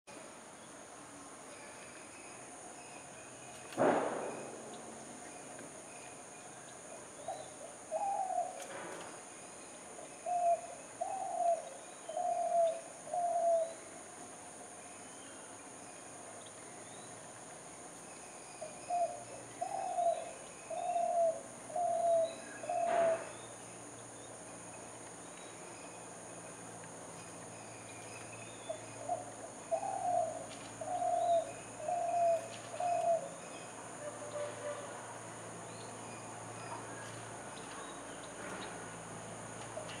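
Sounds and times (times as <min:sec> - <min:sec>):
dove cooing: 0:07.3 - 0:08.6, 0:10.2 - 0:13.8, 0:18.9 - 0:23.4, 0:29.0 - 0:33.4
faint high bird chirps: 0:18.1 - 0:24.3, 0:35.7 - 0:38.8.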